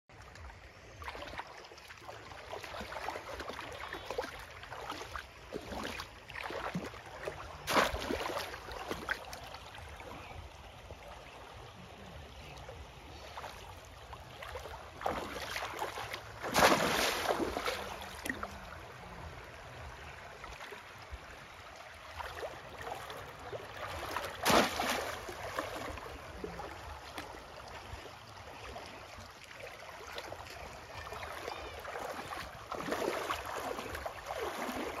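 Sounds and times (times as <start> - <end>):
water splashing and sloshing: 0.1 - 35.0.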